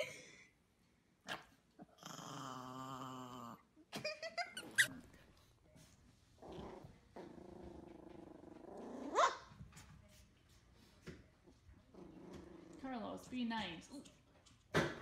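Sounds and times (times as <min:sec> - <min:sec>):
small dog growling: 0:01.8 - 0:03.7, 0:06.4 - 0:09.3, 0:11.9 - 0:12.9.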